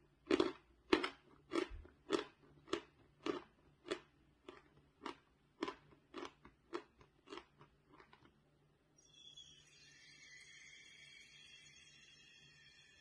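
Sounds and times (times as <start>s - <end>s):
crunchy chewing: 0.2s - 8.3s
faint hiss with high tones: 9.0s - 13.0s.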